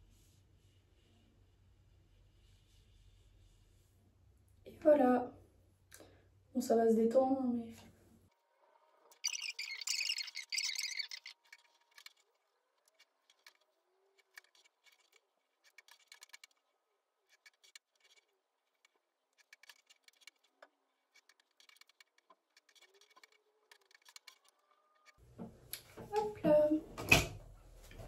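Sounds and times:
hair rustling and clicks: 0:09.1 - 0:26.1.

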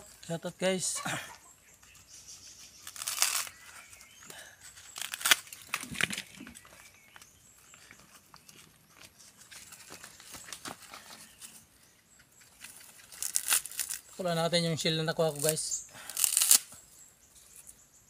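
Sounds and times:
rustling and snapping: 0:02.8 - 0:03.9, 0:04.7 - 0:11.6, 0:12.4 - 0:14.1, 0:15.4 - 0:16.8
coconut husk fibres ripping: 0:02.8 - 0:11.6, 0:12.5 - 0:14.4, 0:15.2 - 0:16.8.

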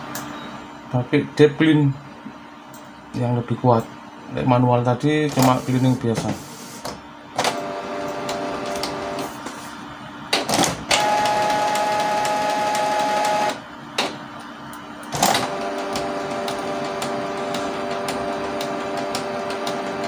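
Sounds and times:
printer motors whining: 0:05.2 - 0:20.0
sharp printer clicks: 0:15.1 - 0:20.0.

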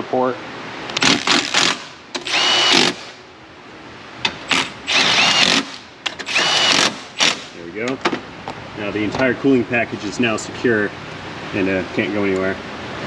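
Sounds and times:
power driver whining: 0:01.0 - 0:03.2, 0:04.3 - 0:07.6.

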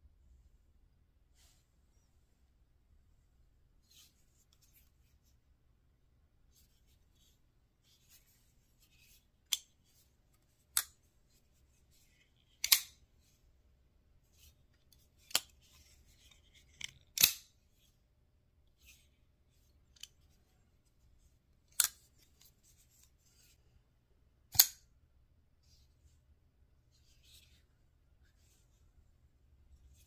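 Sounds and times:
faint sliding and rubbing: 0:01.2 - 0:05.5, 0:06.4 - 0:13.6, 0:14.2 - 0:18.1, 0:18.7 - 0:24.0, 0:25.6 - 0:30.0
folding knife blade clicking: 0:12.6 - 0:12.9.

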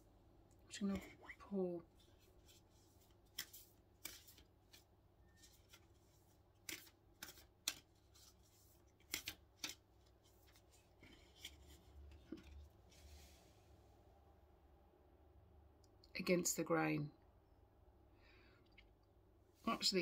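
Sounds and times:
cards shuffled clicking and slapping: 0:02.0 - 0:12.6.

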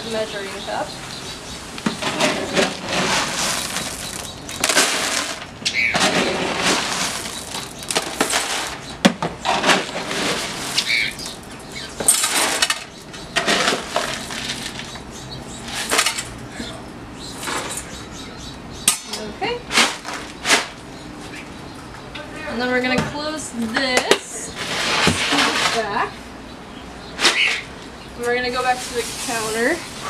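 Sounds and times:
dry kibble pouring into plastic tub: 0:02.6 - 0:05.5, 0:06.1 - 0:08.8, 0:09.6 - 0:11.4, 0:13.7 - 0:14.9.

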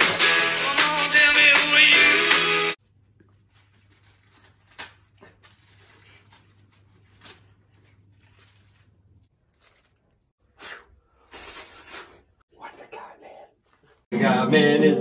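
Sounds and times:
plastic wrapper rustling and tearing: 0:03.0 - 0:10.3.

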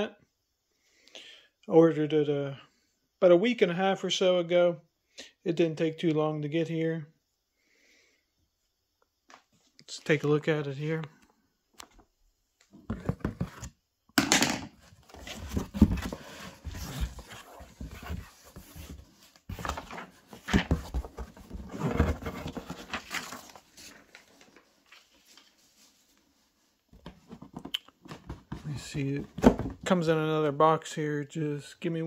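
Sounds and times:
cardboard flaps scraping open: 0:14.9 - 0:24.2
packing paper rustling: 0:15.0 - 0:26.0.

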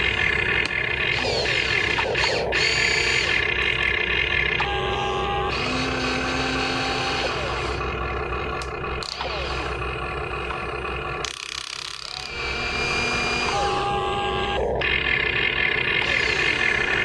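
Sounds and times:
toy excavator motors whining: 0:00.0 - 0:17.0.

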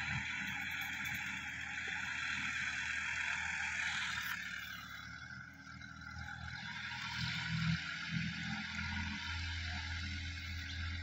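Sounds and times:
distant tractor diesel engine: 0:00.0 - 0:11.0.

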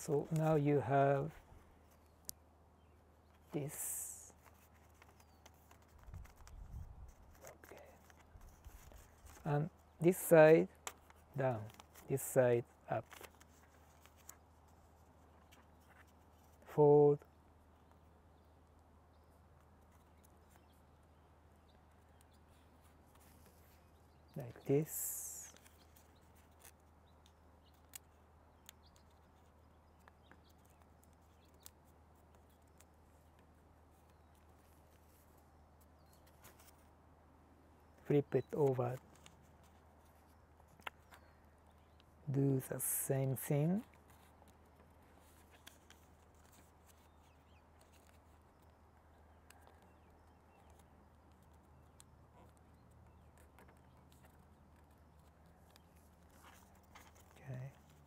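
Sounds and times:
paper being folded: 0:04.2 - 0:16.6, 0:24.6 - 0:37.0, 0:38.1 - 0:42.2, 0:43.6 - 0:58.0.

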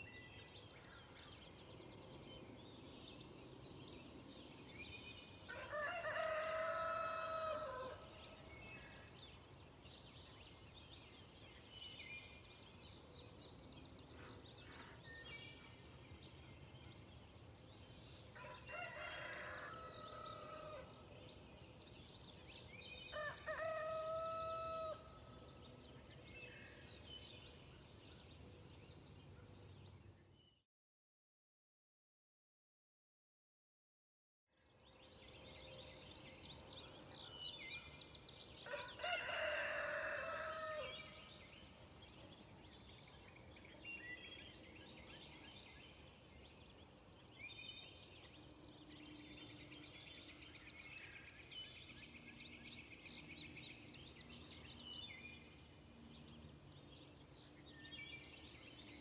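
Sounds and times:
rooster crowing: 0:05.5 - 0:08.1, 0:23.1 - 0:25.1, 0:38.7 - 0:41.1.

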